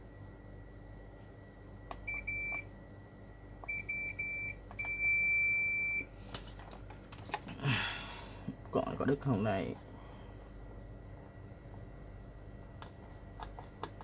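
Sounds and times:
multimeter beeps: 2.0s - 2.7s, 3.6s - 6.1s.

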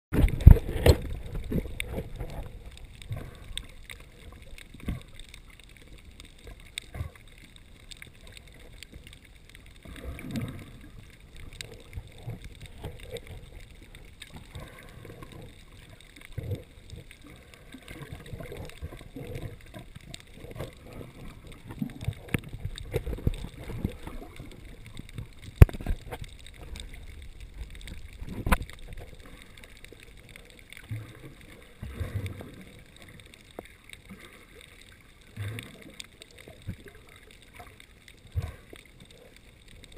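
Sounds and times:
underwater rumble: 0.1s - 39.9s
water gurgles and sloshes: 0.1s - 39.9s.

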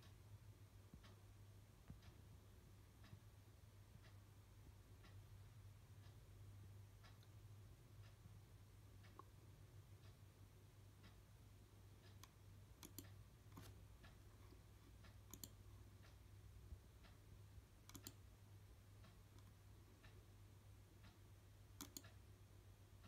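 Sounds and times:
faint steady low hum: 0.0s - 23.0s
faint clicks: 12.0s - 16.2s, 17.8s - 18.3s, 21.8s - 22.2s.

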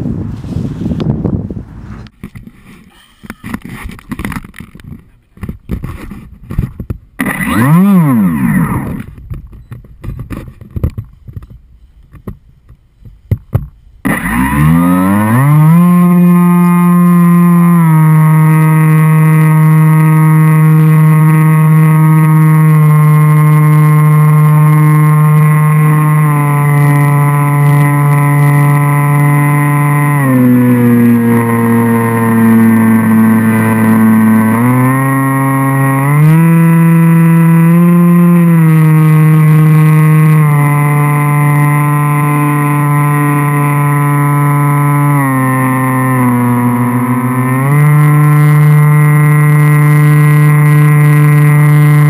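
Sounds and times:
wind buffeting: 0.0s - 2.2s.

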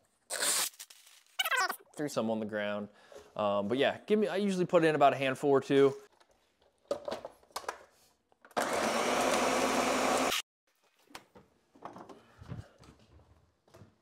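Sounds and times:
blender running: 8.5s - 10.4s.

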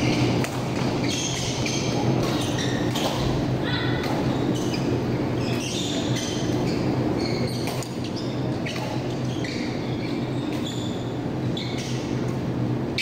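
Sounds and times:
low hall hum: 0.0s - 13.0s
shoes squeaking on court floor: 0.0s - 13.0s.

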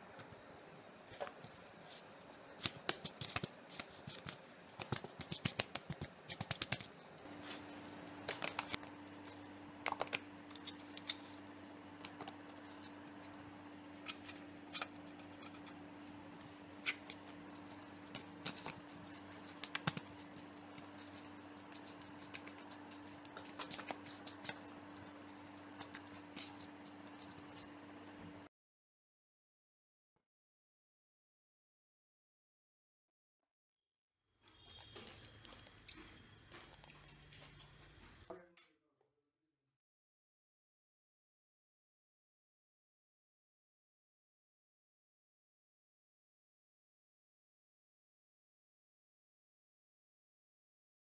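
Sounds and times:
steady low hum: 0.0s - 28.5s.

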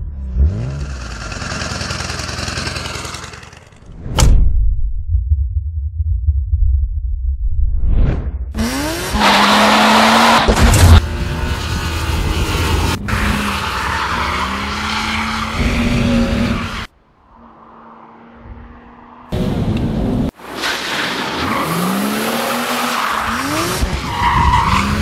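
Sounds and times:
car engine revving: 0.0s - 3.9s, 8.6s - 16.8s.

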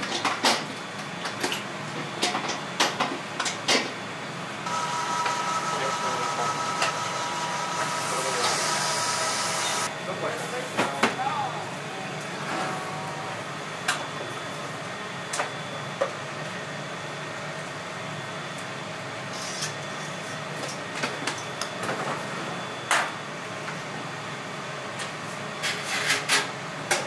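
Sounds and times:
machine hum: 4.6s - 10.1s.

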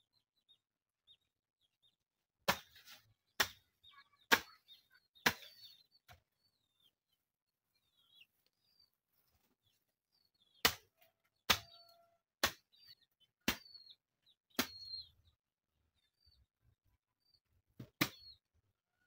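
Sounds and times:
small birds chirping: 0.0s - 19.0s
hoe chopping into soil: 2.5s - 3.6s.

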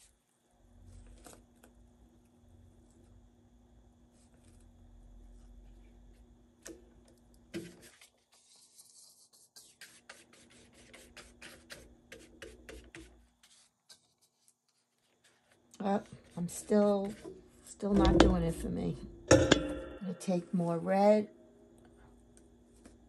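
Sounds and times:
paintbrush scraping and dabbing: 7.6s - 18.6s.

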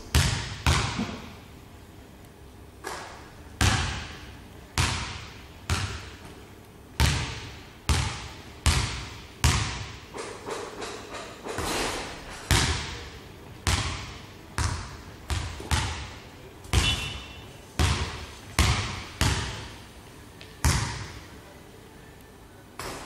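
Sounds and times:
basketball bouncing on wooden floor: 0.1s - 1.3s, 2.9s - 4.1s, 4.8s - 6.2s, 7.0s - 10.8s, 12.5s - 13.0s, 13.6s - 16.1s, 16.7s - 17.2s, 17.8s - 19.7s, 20.6s - 21.1s.

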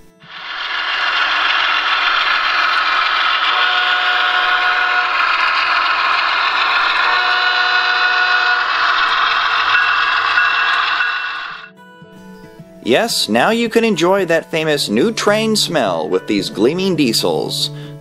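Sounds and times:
freight train rumbling: 0.3s - 11.6s
train horn blasts: 2.8s - 9.8s.

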